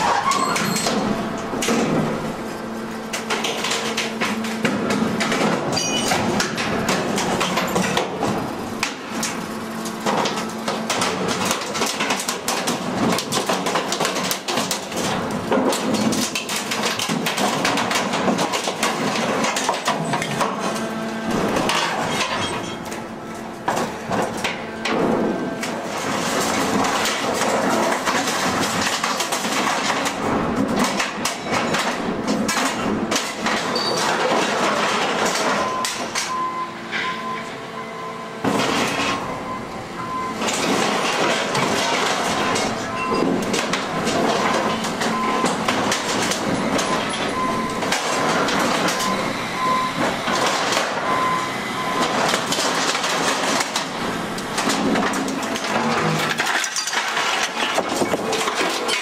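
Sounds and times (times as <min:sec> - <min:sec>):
metal clanking and crunching: 0:00.0 - 0:37.6, 0:38.3 - 0:59.0
machine hum: 0:00.6 - 0:35.7.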